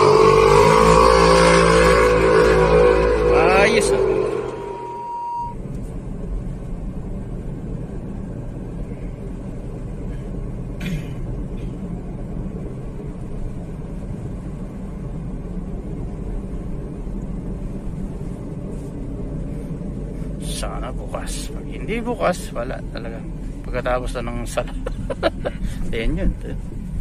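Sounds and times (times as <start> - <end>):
car engine and road rumble: 0.0 - 27.0
short beep: 4.2 - 5.6.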